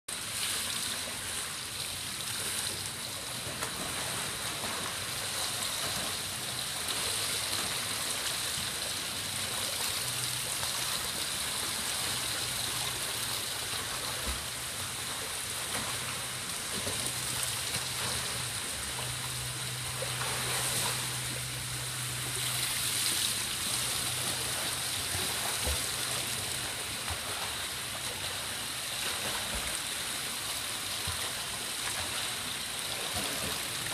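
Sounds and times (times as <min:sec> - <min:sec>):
swimmer splashing water: 0:00.1 - 0:33.9
low hum: 0:03.0 - 0:29.7.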